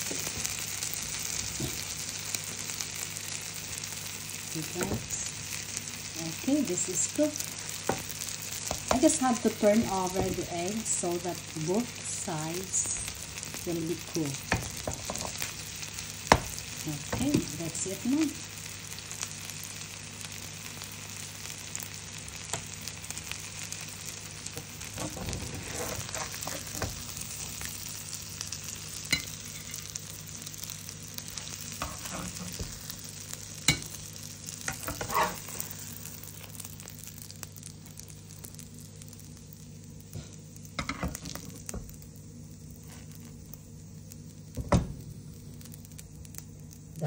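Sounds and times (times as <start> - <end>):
omelette sizzling in a frying pan: 0.0 - 47.0
metal spatula scraping a pan: 25.0 - 26.7, 31.8 - 32.6, 34.7 - 35.7.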